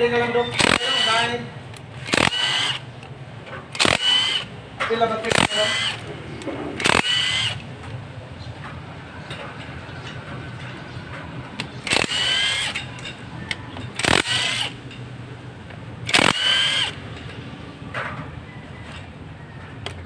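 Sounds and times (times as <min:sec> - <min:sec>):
cordless driver spinning bolts: 0:00.4 - 0:08.0, 0:11.6 - 0:15.0, 0:16.0 - 0:17.3.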